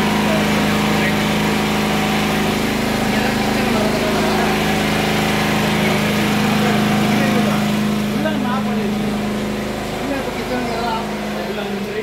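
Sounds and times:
portable generator running: 0:00.0 - 0:12.0.

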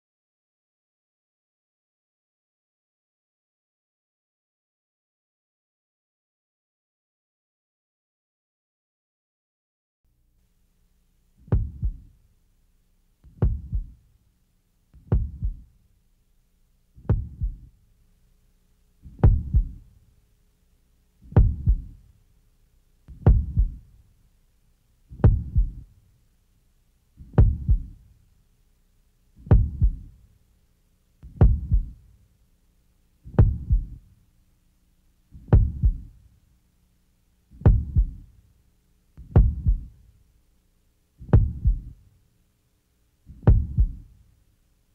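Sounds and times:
heartbeat thumps: 0:11.5 - 0:12.1, 0:13.3 - 0:14.0, 0:15.0 - 0:15.7, 0:17.0 - 0:17.7, 0:19.0 - 0:19.9, 0:21.2 - 0:22.0, 0:23.1 - 0:23.9, 0:25.1 - 0:25.9, 0:27.2 - 0:28.0, 0:29.4 - 0:30.2, 0:31.2 - 0:32.0, 0:33.3 - 0:34.0, 0:35.4 - 0:36.2, 0:37.6 - 0:38.3, 0:39.2 - 0:40.0, 0:41.2 - 0:42.0, 0:43.3 - 0:44.1.

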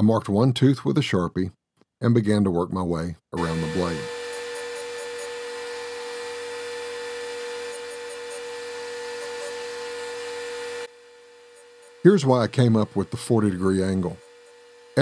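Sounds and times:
table saw motor humming: 0:03.4 - 0:15.0.

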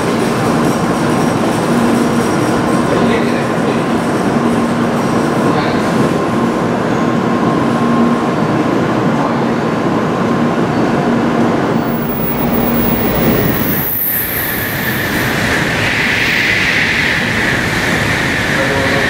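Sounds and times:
train equipment humming: 0:10.0 - 0:19.0.

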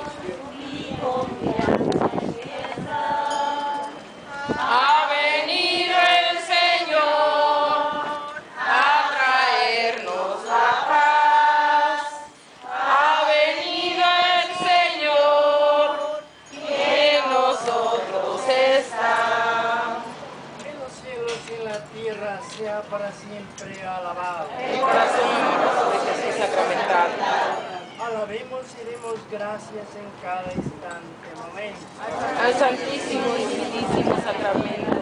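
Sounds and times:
group singing a hymn: 0:00.0 - 0:20.4, 0:24.5 - 0:28.0, 0:32.0 - 0:35.0.

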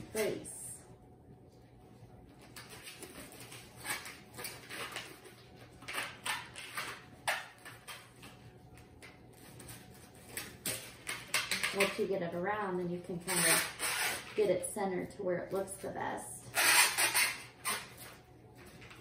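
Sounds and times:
foam noodles squeaking and rubbing: 0:02.5 - 0:08.2, 0:13.1 - 0:14.4, 0:16.5 - 0:18.2.

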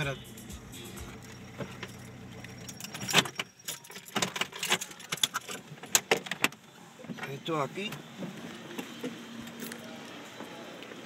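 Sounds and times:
car running hum: 0:00.0 - 0:03.2
metallic clicks and jangles: 0:00.0 - 0:06.1.

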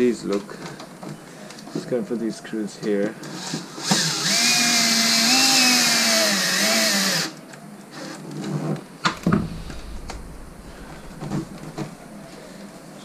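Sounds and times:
cordless drill motor whine: 0:03.8 - 0:07.4.

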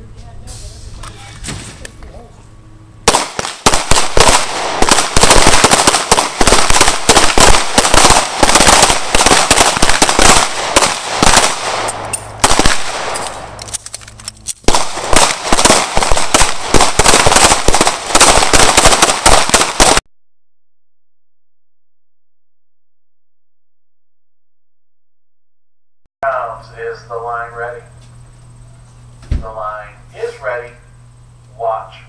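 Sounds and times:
pistols firing rapidly: 0:03.1 - 0:13.5, 0:14.6 - 0:20.0.

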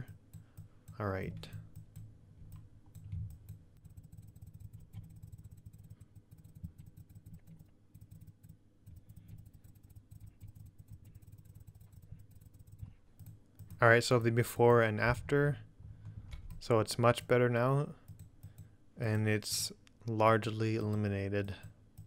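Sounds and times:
mouse and keyboard clicking: 0:00.0 - 0:14.0, 0:18.0 - 0:18.7
low steady hum: 0:00.0 - 0:22.0.

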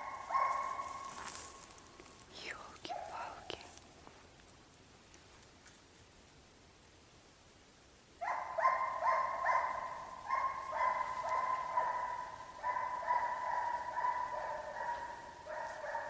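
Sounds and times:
hounds baying: 0:00.0 - 0:01.4, 0:08.2 - 0:16.0.

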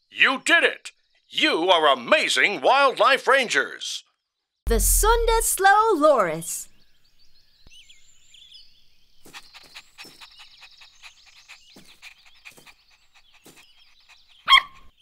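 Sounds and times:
puppy barking: 0:14.4 - 0:14.9.

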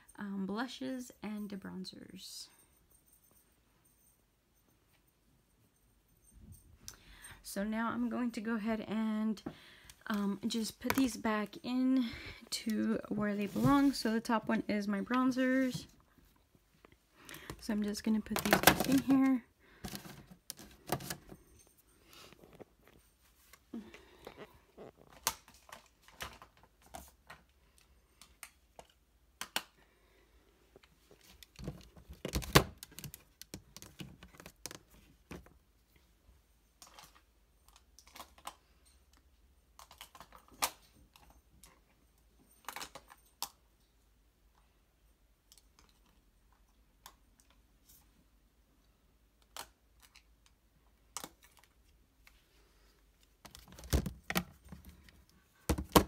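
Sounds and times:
compacts clicking against plastic baskets: 0:18.2 - 0:21.2.

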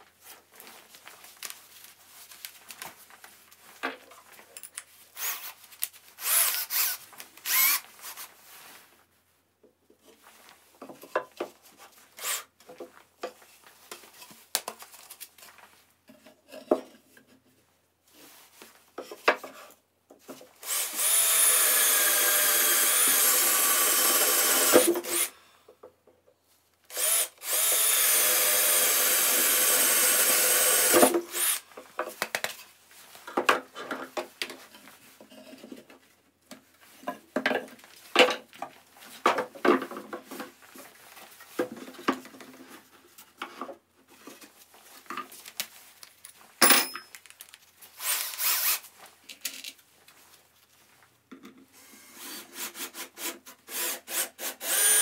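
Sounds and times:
cordless drill boring wood: 0:05.2 - 0:05.5, 0:06.2 - 0:08.2, 0:12.2 - 0:12.4, 0:20.6 - 0:25.4, 0:26.9 - 0:31.6, 0:48.0 - 0:48.8, 0:51.9 - 0:55.0.

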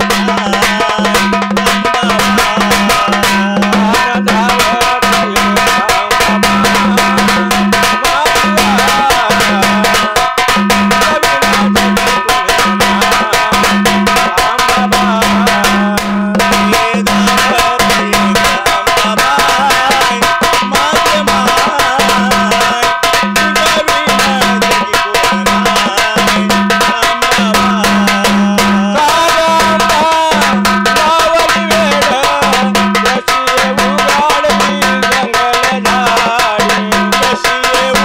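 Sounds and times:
deep ringing drum tone: 0:00.0 - 0:38.0
stick-played drums fast rhythm: 0:00.0 - 0:38.0.

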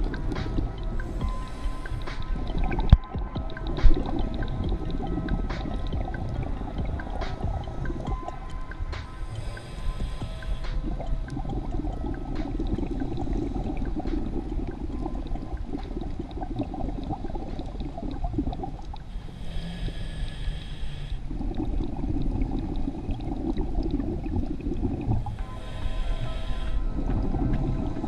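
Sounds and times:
hissing inhale through regulator: 0:00.0 - 0:03.0, 0:07.2 - 0:16.1, 0:18.9 - 0:28.0
bubbles gurgling: 0:00.0 - 0:19.1, 0:21.2 - 0:25.6, 0:26.4 - 0:28.0.

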